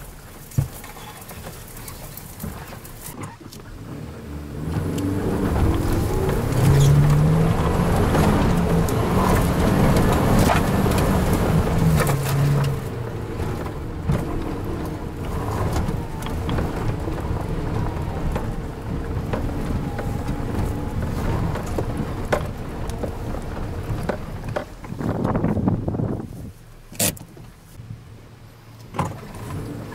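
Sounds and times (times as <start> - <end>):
off-road engine revving: 0.9 - 26.2
knocks and rattles: 4.8 - 25.9.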